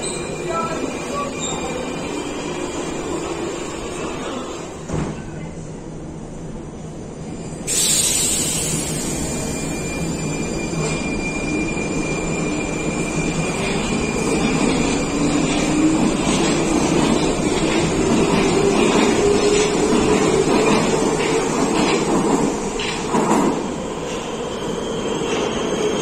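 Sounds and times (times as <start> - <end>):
loud hiss: 7.6 - 9.5.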